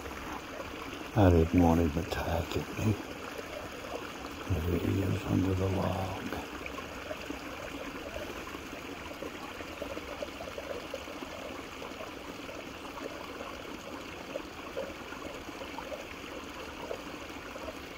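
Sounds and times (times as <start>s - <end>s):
creek water babbling: 0.0s - 17.9s.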